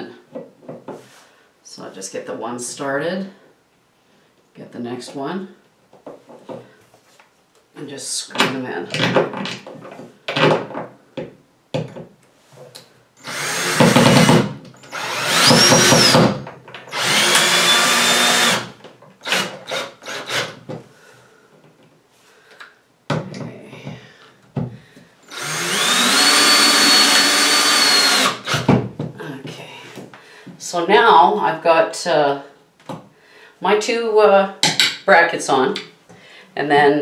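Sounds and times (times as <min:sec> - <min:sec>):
cordless drill driving screws: 0:13.2 - 0:20.6, 0:25.2 - 0:28.7.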